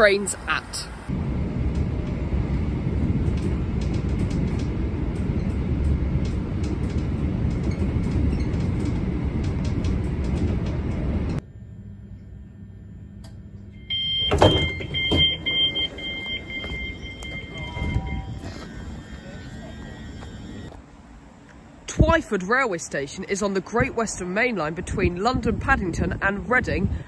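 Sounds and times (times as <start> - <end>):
train carriage rumble: 0.0 - 11.4, 13.9 - 27.0
door-warning beeps: 13.8 - 20.7
sliding door clunk: 14.2 - 16.8.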